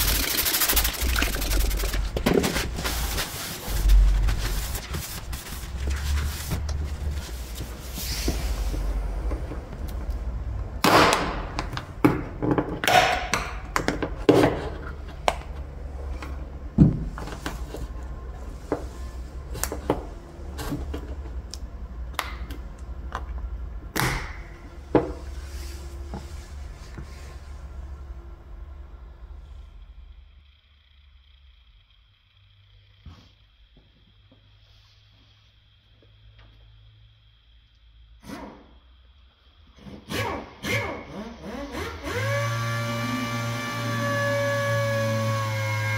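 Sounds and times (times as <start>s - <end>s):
low hum: 0.0s - 10.8s, 14.8s - 38.1s.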